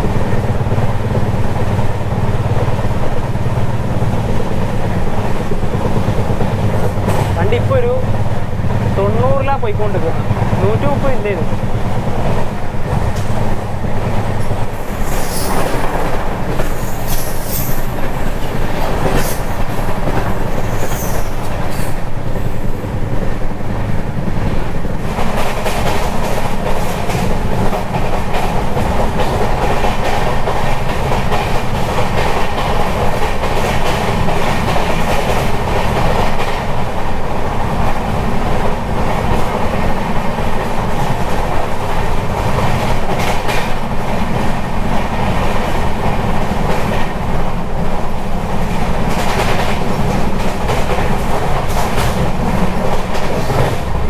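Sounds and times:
clickety-clack of rail joints: 0.0s - 54.0s
train wheels rumbling on rails: 0.0s - 54.0s.

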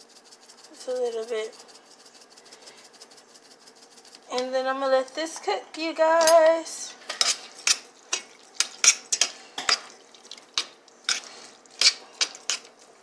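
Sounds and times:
spoon scraping a metal saucepan: 6.2s - 10.0s, 11.0s - 12.7s.

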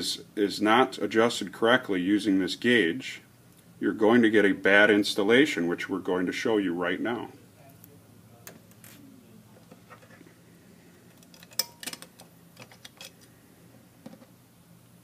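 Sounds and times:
faint low hum: 0.0s - 15.0s
metal parts clicking and tapping: 11.1s - 13.3s.

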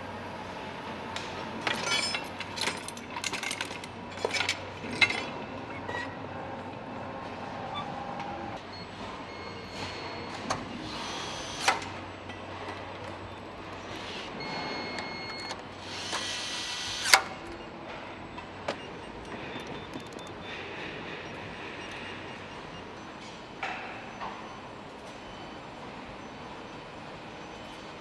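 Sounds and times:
factory hum: 0.0s - 28.0s
metal tools clanking: 1.6s - 5.4s
power driver whirring: 15.2s - 17.3s.

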